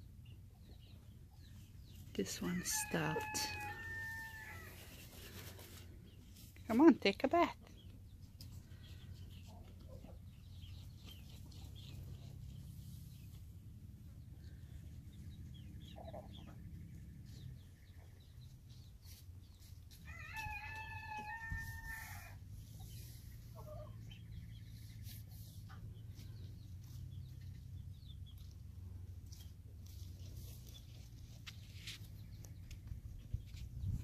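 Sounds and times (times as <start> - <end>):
chicken clucking: 8.3 - 12.4.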